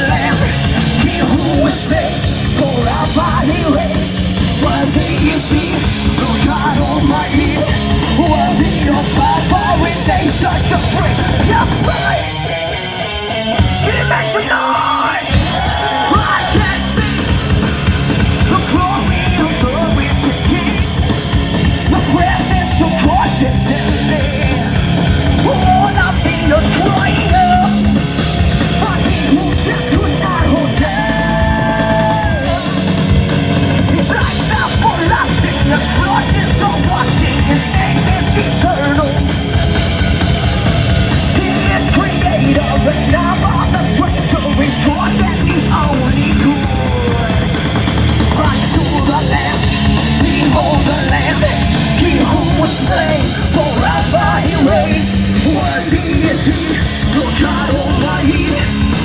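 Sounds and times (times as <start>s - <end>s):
bass guitar: 0.0s - 59.0s
drum kit: 0.0s - 59.0s
electric guitar: 0.0s - 59.0s
singer yelling and singing: 0.0s - 59.0s.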